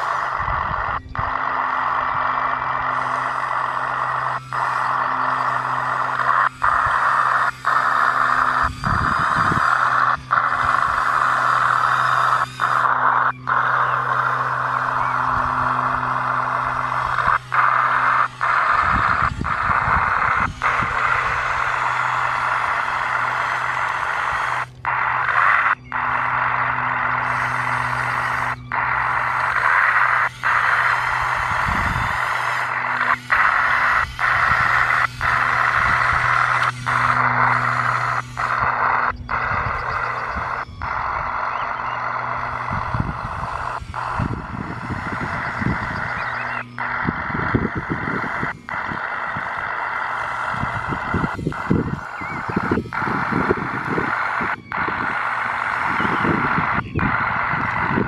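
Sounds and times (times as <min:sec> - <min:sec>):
crackling track noise: 0:00.0 - 0:58.0
electric motors and gearbox whirring: 0:00.0 - 0:58.0
low steady hum: 0:00.0 - 0:58.0.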